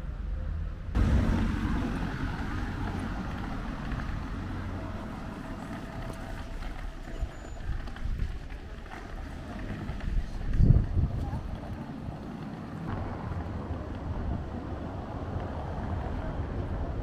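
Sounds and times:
car driving along street: 0.0 - 17.0
traffic noise: 0.0 - 17.0.

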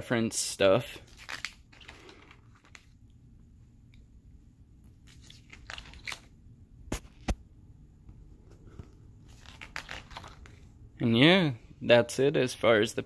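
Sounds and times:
paper pages rustling: 1.0 - 3.0, 4.9 - 6.3, 8.5 - 10.7.

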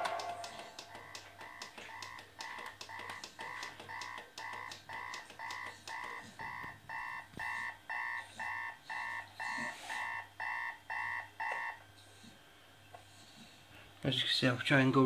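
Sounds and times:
two-tone alarm clock beeping: 0.0 - 1.6
hand slapping alarm clock: 0.0 - 6.2.

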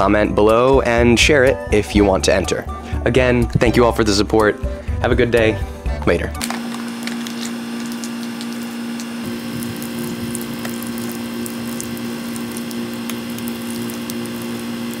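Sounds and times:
crackling: 6.4 - 15.0
steady hum: 6.4 - 15.0
liquid splashing on asphalt: 9.3 - 14.6.

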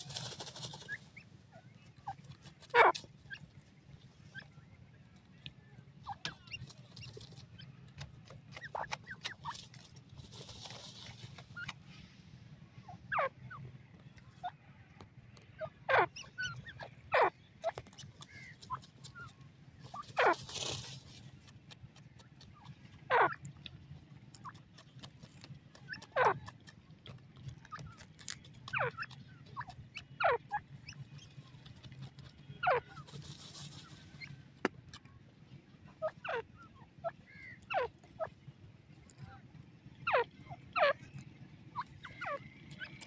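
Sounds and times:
rustling and fluttering in dust: 0.0 - 4.3, 9.1 - 12.2, 17.6 - 22.8, 30.8 - 34.5.

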